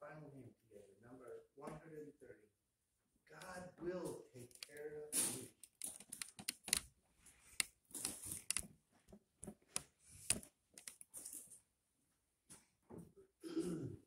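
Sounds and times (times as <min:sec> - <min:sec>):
rustling and crinkling: 0:03.9 - 0:11.7.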